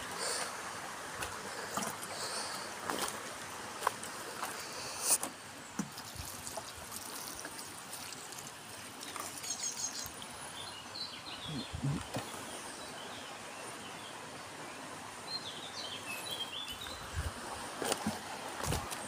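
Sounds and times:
steady background hiss: 0.0 - 19.0
bird chirps: 9.4 - 12.4.

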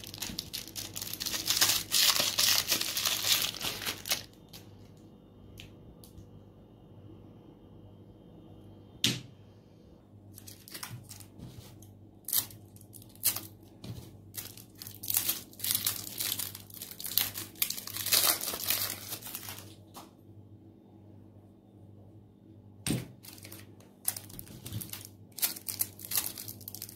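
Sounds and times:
cellophane wrapper crinkling: 0.0 - 5.1, 10.3 - 20.1, 23.2 - 26.9.

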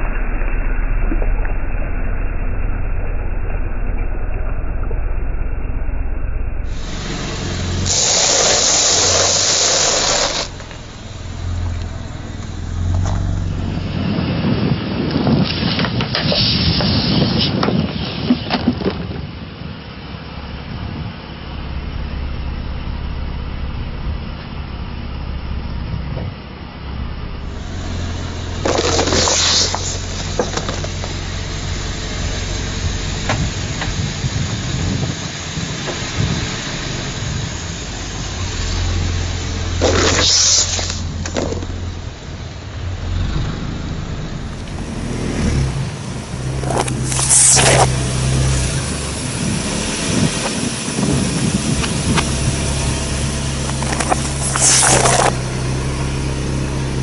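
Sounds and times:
car engine running: 0.0 - 57.0
loud hiss: 6.7 - 18.6, 27.3 - 57.0.

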